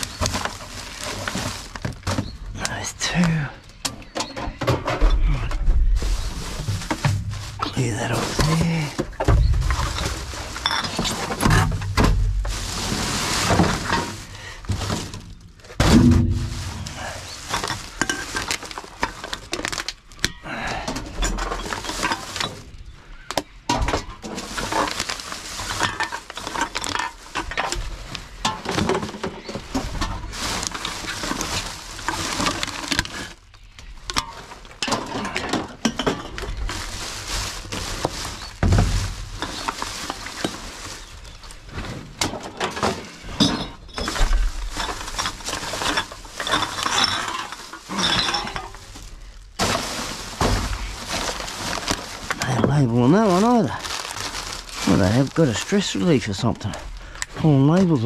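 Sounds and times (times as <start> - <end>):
glass bottles clinking: 7.4 - 12.0, 34.1 - 38.6, 42.4 - 56.8.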